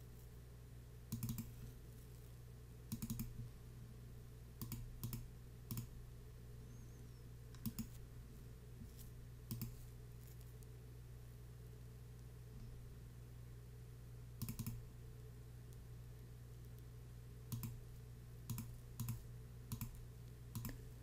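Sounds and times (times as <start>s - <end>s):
low steady hum: 0.0s - 21.0s
computer mouse clicking: 1.1s - 1.6s, 2.9s - 3.4s, 4.6s - 5.9s, 7.5s - 8.0s, 9.5s - 9.8s, 14.4s - 14.8s, 17.5s - 17.8s, 18.5s - 20.8s.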